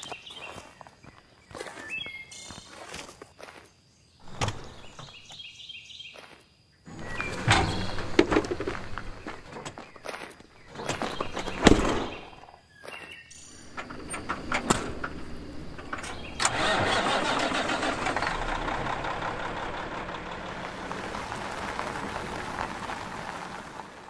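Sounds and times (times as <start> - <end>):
diesel truck engine starting: 6.9 - 9.8, 13.4 - 24.0.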